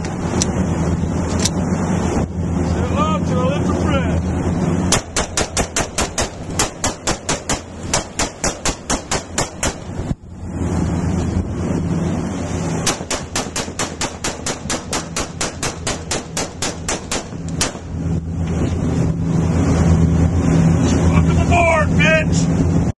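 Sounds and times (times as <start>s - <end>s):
boat engine humming: 0.0s - 22.9s
rifle rapid gunshots: 4.9s - 9.8s, 12.9s - 17.8s.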